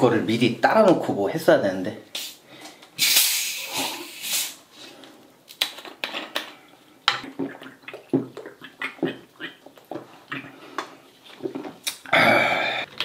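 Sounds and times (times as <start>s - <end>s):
carbonation hissing: 3.0s - 4.9s.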